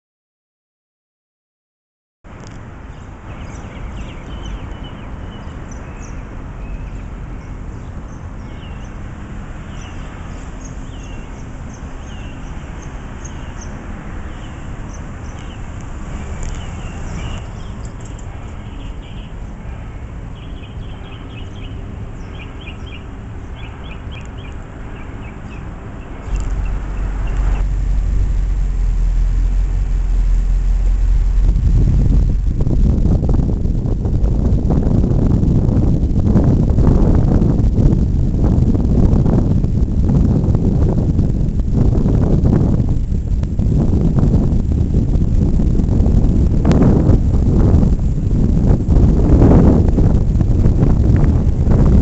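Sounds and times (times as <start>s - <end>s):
steady low rumble: 2.3s - 52.0s
small birds chirping: 2.8s - 27.9s.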